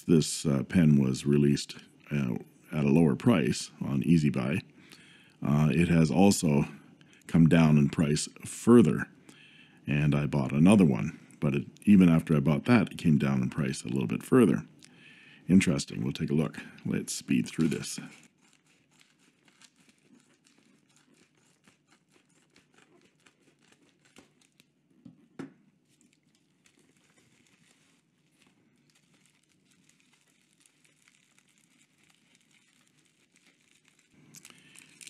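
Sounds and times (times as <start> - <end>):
bubble wrap crinkling: 15.6 - 35.0.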